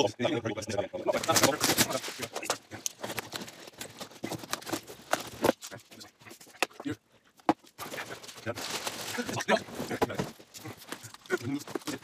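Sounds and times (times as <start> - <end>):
packing tape tearing: 1.2 - 5.5
cardboard flaps folding: 1.2 - 5.7
scrapes and rustles: 1.2 - 6.6, 7.8 - 12.0.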